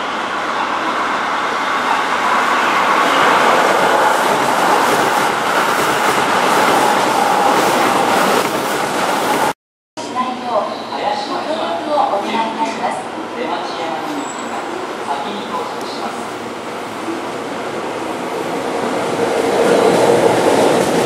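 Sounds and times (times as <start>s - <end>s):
train wheels rumbling on rails: 0.0s - 9.6s, 18.0s - 21.0s.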